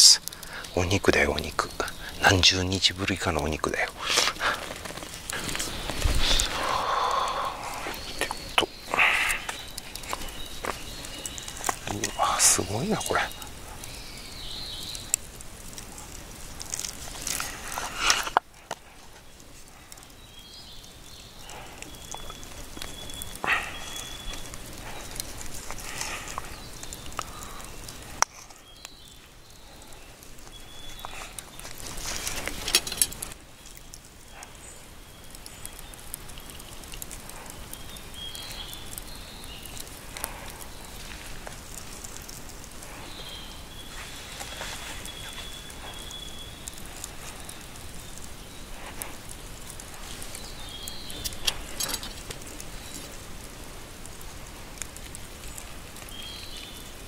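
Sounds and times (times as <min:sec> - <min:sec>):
campfire crackling: 0:00.0 - 0:57.0
rustling: 0:04.0 - 0:06.8, 0:15.0 - 0:20.0, 0:21.5 - 0:34.2, 0:39.6 - 0:57.0
faint high wildlife calls: 0:05.2 - 0:15.3, 0:16.7 - 0:33.0, 0:33.7 - 0:53.2.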